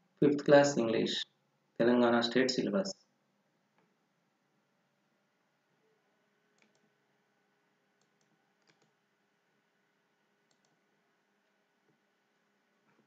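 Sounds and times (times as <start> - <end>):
computer mouse clicks: 6.6 - 6.9, 8.0 - 9.0, 10.4 - 10.8.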